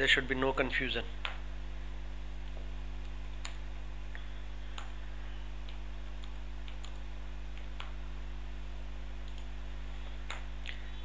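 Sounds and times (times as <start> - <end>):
low electrical hum: 0.0 - 11.0
keyboard keystrokes clicking: 5.6 - 8.0.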